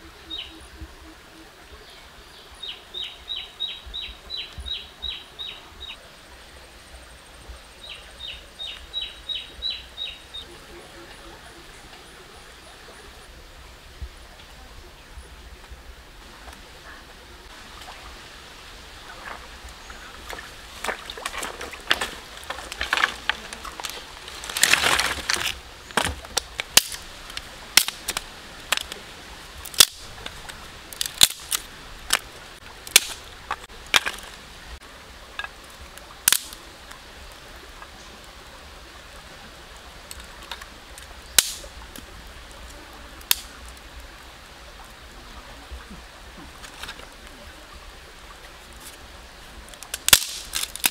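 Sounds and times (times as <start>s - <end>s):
sticks rustling: 19.1s - 34.6s, 35.3s - 36.6s, 40.0s - 43.9s, 46.4s - 47.4s, 48.4s - 50.9s
dry twigs cracking: 20.1s - 34.5s, 35.3s - 36.6s, 40.0s - 42.1s, 43.2s - 43.8s, 49.7s - 50.9s.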